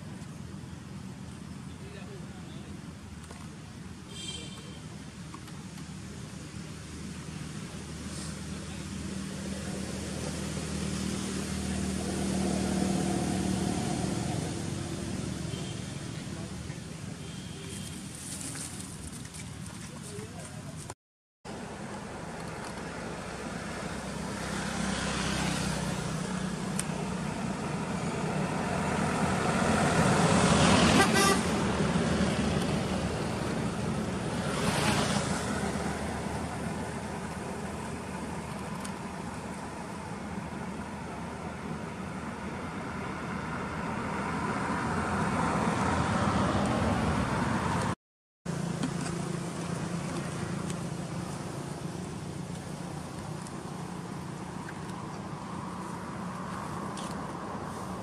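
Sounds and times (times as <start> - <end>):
vehicles passing on a road: 0.0 - 58.0
low engine hum: 21.5 - 58.0.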